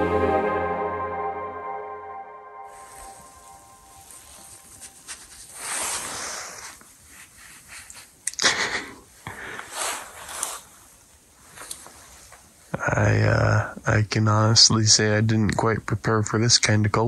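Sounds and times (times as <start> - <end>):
loud sharp sniff: 5.4 - 8.1, 9.3 - 10.7
person breathing: 7.4 - 10.6.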